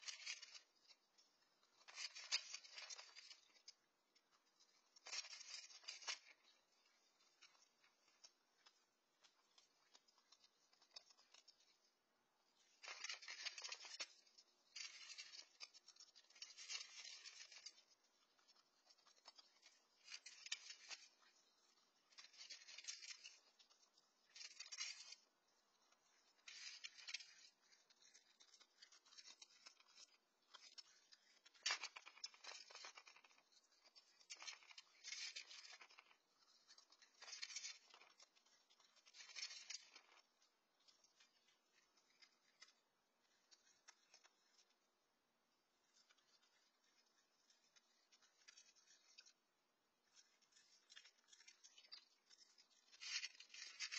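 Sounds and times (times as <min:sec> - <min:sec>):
raccoon crunching kibble: 0:00.0 - 0:00.9, 0:12.7 - 0:40.3.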